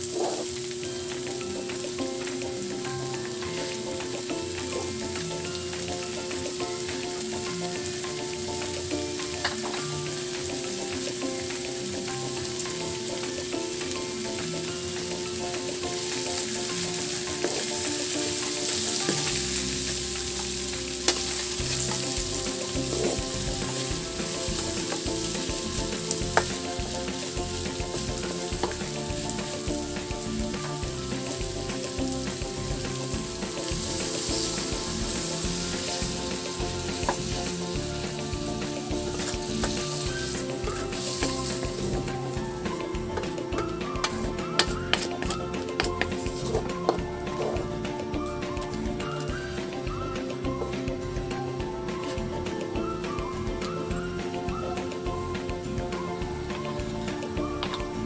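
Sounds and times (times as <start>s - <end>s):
shrimp sizzling in oil: 0.0s - 58.0s
wooden spatula stirring: 14.5s - 47.8s.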